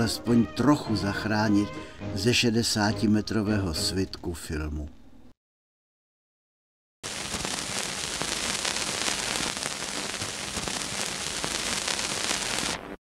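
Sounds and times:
old film surface noise: 7.0 - 12.9.

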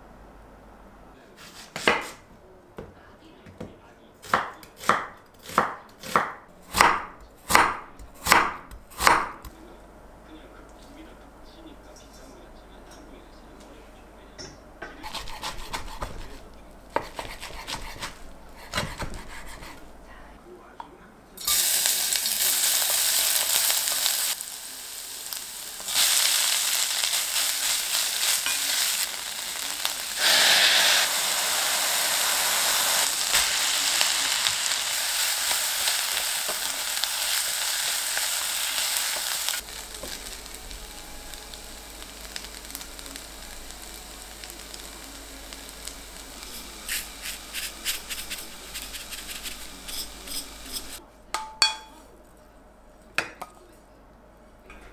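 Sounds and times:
food sizzling in a frying pan: 21.4 - 51.0.

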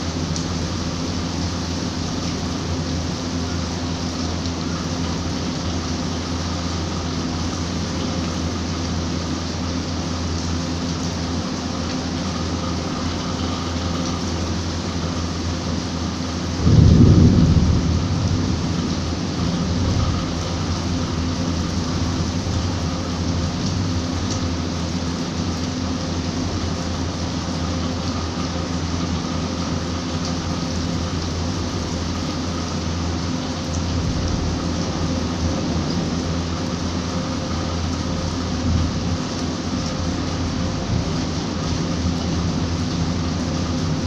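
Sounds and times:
low steady hum: 0.0 - 44.0
rain spattering on a rooftop: 0.0 - 44.0
thunder rumble: 16.5 - 24.2, 33.8 - 39.3.

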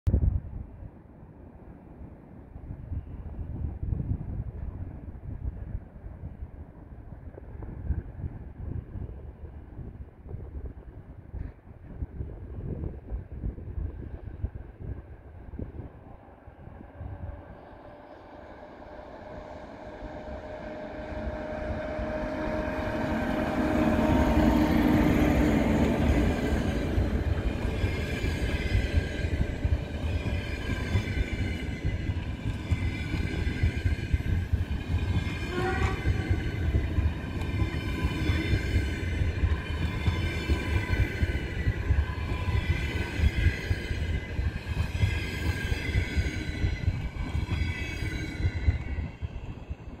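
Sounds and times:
train passing at speed: 0.3 - 50.0
wheels rumbling on rails: 3.6 - 50.0
train wheel squeal: 17.0 - 50.0.

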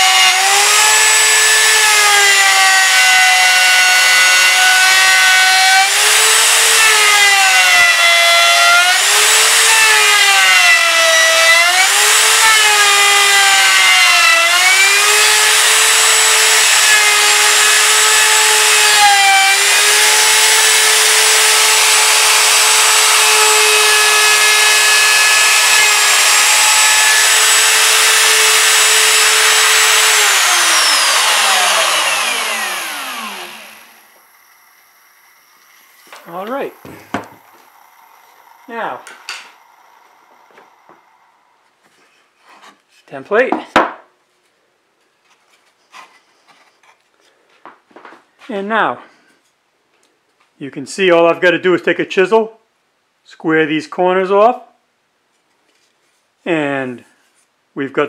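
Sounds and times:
router motor whine: 0.0 - 41.8.

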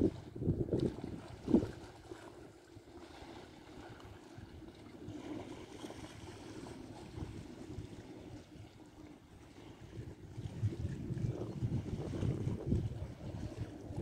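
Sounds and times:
wind gust on microphone: 0.0 - 1.9, 9.5 - 14.0
distant motorboat engine drone: 0.0 - 14.0.

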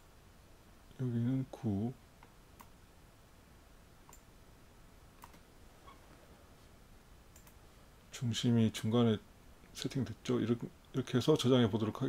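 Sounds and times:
computer mouse clicks: 2.2 - 2.8, 4.0 - 4.3, 5.2 - 5.4, 7.3 - 7.6.

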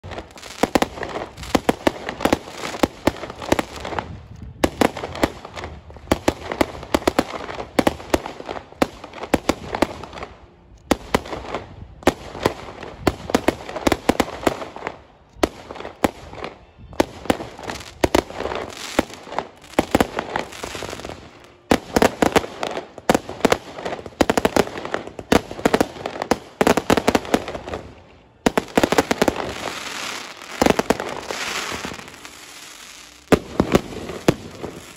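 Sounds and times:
fireworks bangs and crackles: 0.0 - 34.9.

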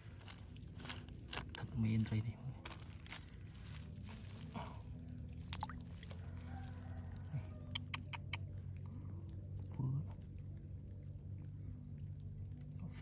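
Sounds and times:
steady low hum: 0.0 - 13.0
water splashing and dripping: 5.4 - 6.2.

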